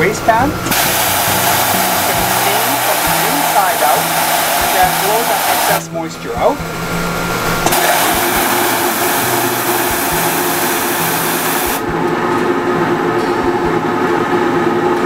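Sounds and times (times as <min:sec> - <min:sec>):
steam hissing: 0:00.0 - 0:11.9
blower drone: 0:00.0 - 0:15.0.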